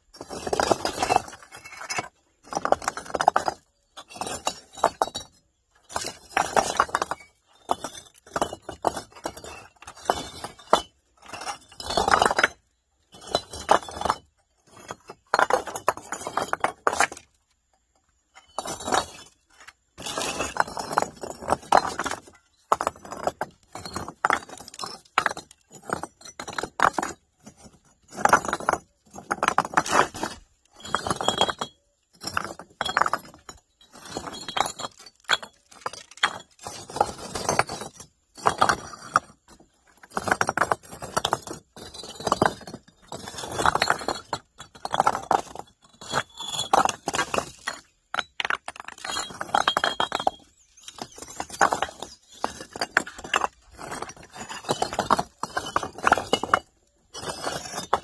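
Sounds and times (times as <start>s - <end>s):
stones clinking and knocking: 0.0s - 58.0s.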